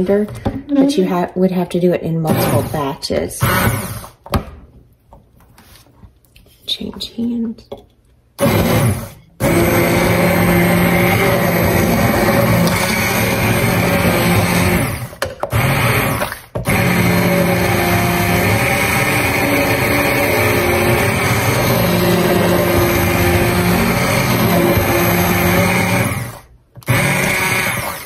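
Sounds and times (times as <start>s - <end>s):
immersion blender pureeing: 2.3s - 4.2s, 8.4s - 28.0s.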